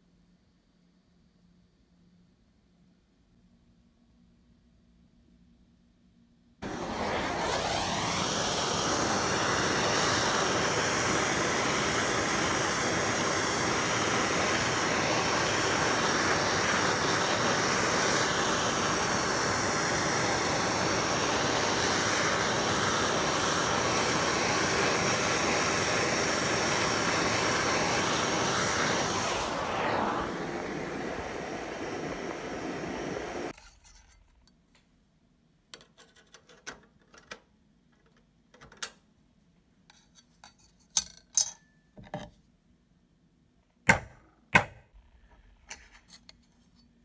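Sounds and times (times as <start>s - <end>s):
gas torch flame hissing: 6.6s - 33.6s.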